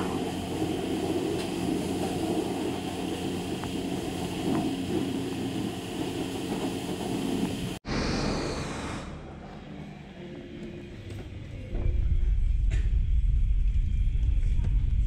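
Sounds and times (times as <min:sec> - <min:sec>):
low mechanical hum: 0:00.0 - 0:07.8.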